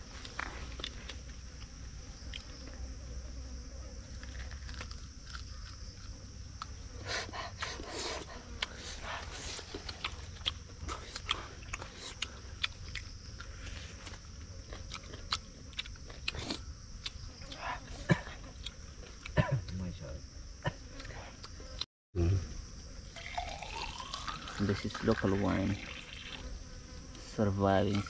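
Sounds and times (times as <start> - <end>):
person chewing meat crunching: 0.1 - 1.2, 4.2 - 6.8, 7.4 - 19.8, 23.2 - 24.7.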